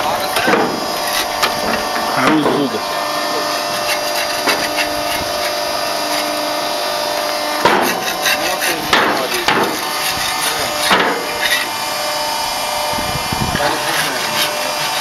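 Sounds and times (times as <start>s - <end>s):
factory machinery humming: 0.0s - 15.0s
loud knocks with clatter: 0.4s - 0.8s, 7.6s - 8.1s, 8.9s - 9.8s, 10.8s - 11.2s.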